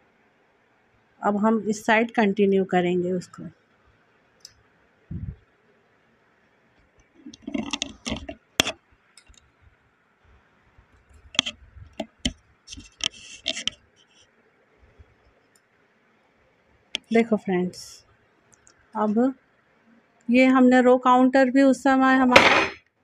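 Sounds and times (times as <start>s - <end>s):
knitting machine clicks and scrapes: 7.2s - 9.4s, 11.2s - 14.2s.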